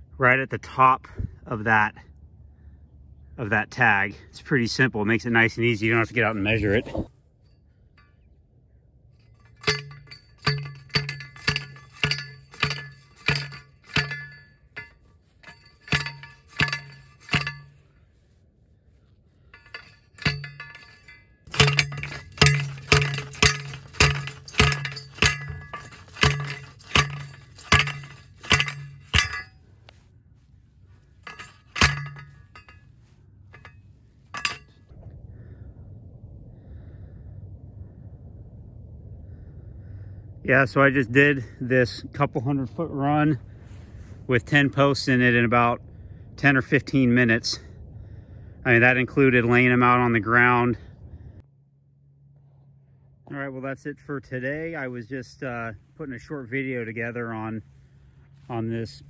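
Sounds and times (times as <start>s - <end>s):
post driver clanking on post: 9.3s - 17.8s, 19.5s - 29.6s, 31.2s - 32.8s, 33.5s - 34.7s.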